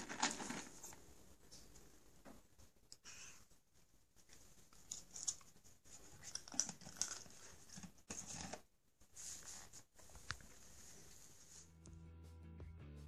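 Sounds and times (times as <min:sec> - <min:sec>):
cat crunching treats: 0:04.7 - 0:08.6.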